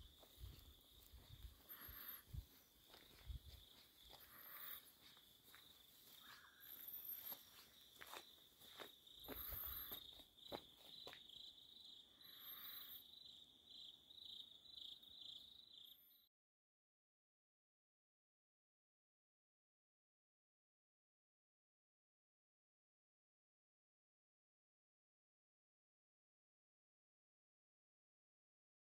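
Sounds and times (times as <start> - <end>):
insect buzzing call: 0.0 - 2.6, 4.1 - 5.1, 11.0 - 16.3
footsteps on dirt path: 0.0 - 11.5
insect chorus trilling: 0.0 - 16.3.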